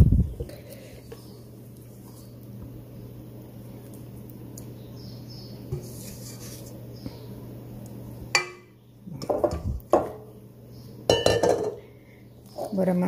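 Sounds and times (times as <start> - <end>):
low steady hum: 0.0 - 13.0
glass bowl knocking on countertop: 11.1 - 11.8.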